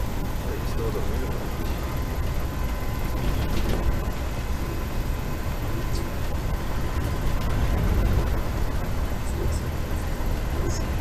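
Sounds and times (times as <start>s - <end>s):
faint steady hum: 0.0s - 11.0s
train wheels rumbling: 0.0s - 11.0s.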